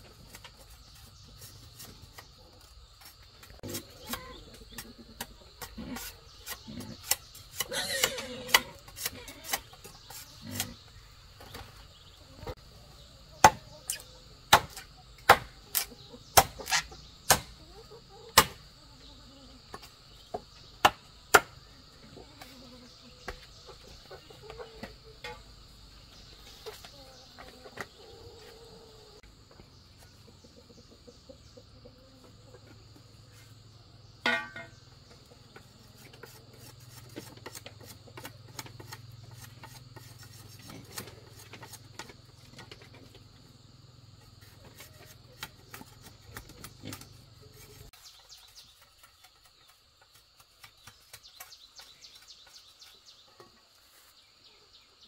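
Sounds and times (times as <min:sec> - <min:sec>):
insects buzzing: 0:00.0 - 0:55.0
machete chopping bamboo: 0:13.4 - 0:17.6, 0:18.4 - 0:18.6, 0:20.8 - 0:21.6, 0:44.4 - 0:53.0
light shaving and tapping: 0:35.6 - 0:43.0, 0:44.2 - 0:53.1.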